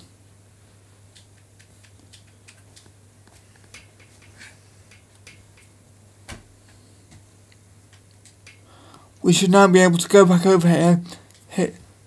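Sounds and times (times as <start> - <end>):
steady low hum: 0.0 - 12.0
small irregular clicks: 1.0 - 9.1, 11.1 - 11.5.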